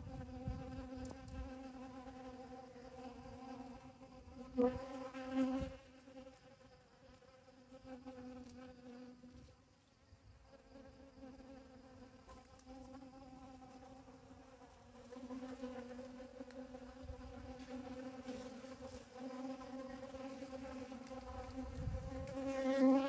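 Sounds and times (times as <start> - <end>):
bees buzzing: 10.6 - 23.0.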